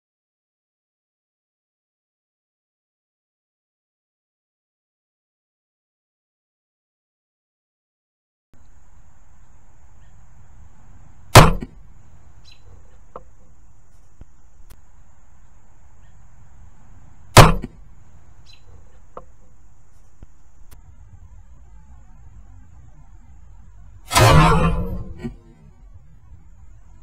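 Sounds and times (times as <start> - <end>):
crossbow shot crack: 11.3 - 11.8, 17.4 - 17.8, 24.1 - 25.6.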